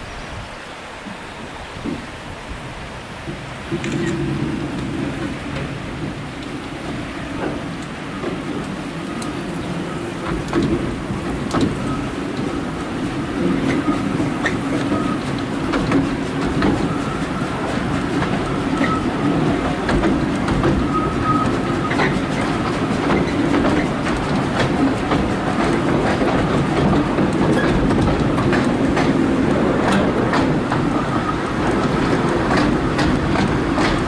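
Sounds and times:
train wheels rumbling on rail: 0.0s - 34.0s
wheels clicking over rail joints: 2.7s - 34.0s
wheels squealing: 16.8s - 19.8s, 20.7s - 24.1s.

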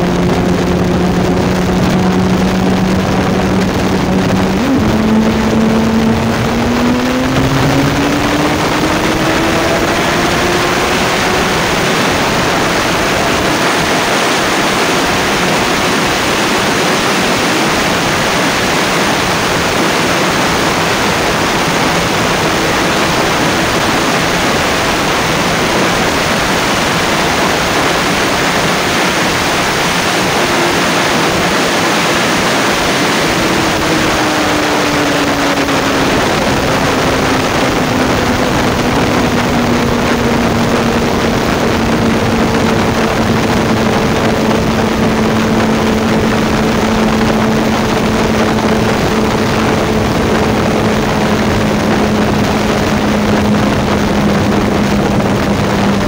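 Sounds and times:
motorcycle engine accelerating: 0.0s - 56.0s
wind rush on microphone: 0.0s - 56.0s.

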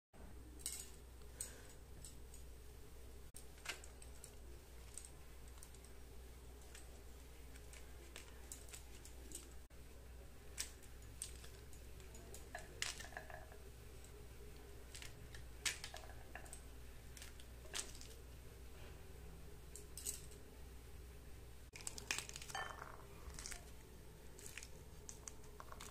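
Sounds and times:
steady low hum: 0.2s - 25.9s
pomegranate breaking open: 21.7s - 23.7s.

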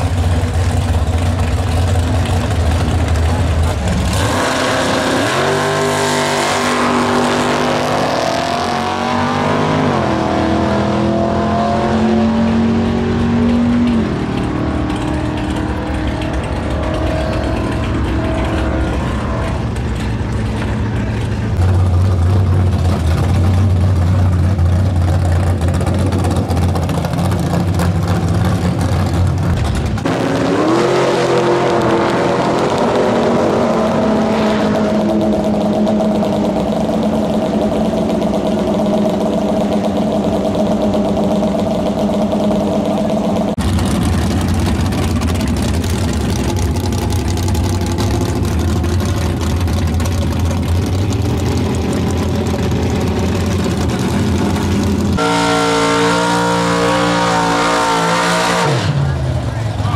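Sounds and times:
loud engine idling: 0.0s - 4.6s, 13.0s - 30.1s, 35.1s - 59.9s
race car engines revving: 0.0s - 59.9s.

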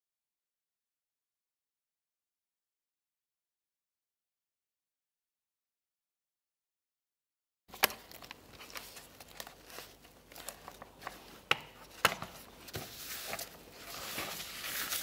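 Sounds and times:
rustling of handled parts: 7.7s - 15.0s.

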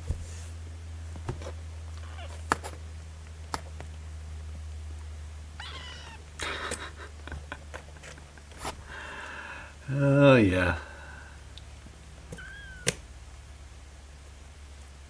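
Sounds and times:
steady low hum: 0.0s - 15.0s
kitten mewing: 5.6s - 6.4s, 12.3s - 13.0s.

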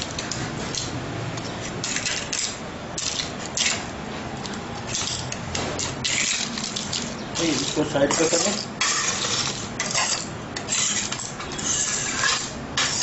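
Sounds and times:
knife scraping on stone: 1.7s - 3.9s, 4.9s - 13.0s.

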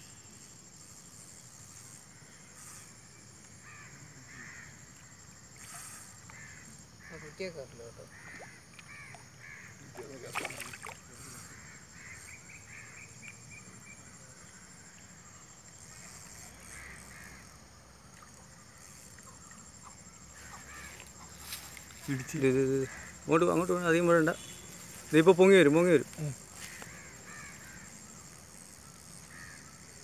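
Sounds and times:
crows cawing: 3.7s - 4.8s, 8.1s - 9.8s, 20.4s - 23.3s, 26.6s - 28.0s, 29.3s - 29.6s.

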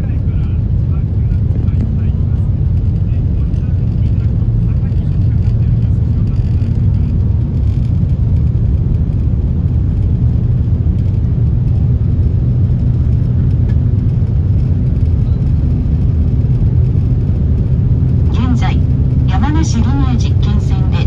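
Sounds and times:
train cabin low rumble: 0.0s - 21.0s.

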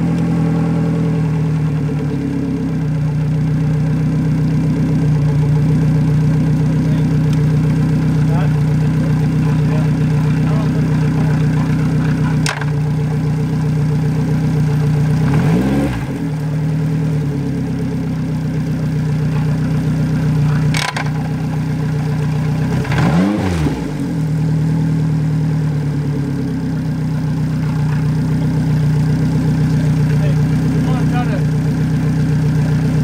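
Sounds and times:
outboard motor idling and revving: 0.0s - 33.0s.

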